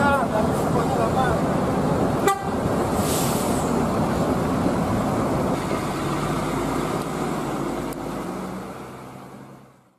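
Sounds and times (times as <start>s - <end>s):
diesel bus engines: 0.0s - 9.9s
road noise: 0.0s - 9.9s
short hiss: 3.0s - 3.7s.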